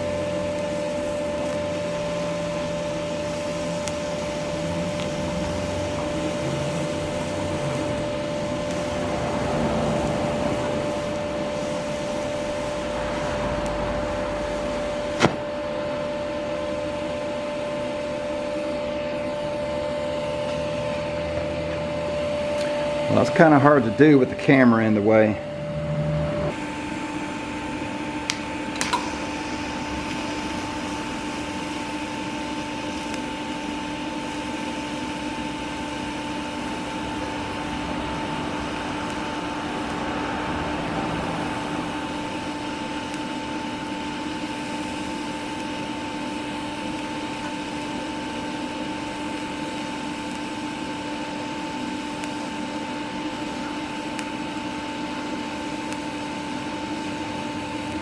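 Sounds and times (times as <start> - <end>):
welding arc hissing: 0.0 - 15.4, 26.5 - 58.0.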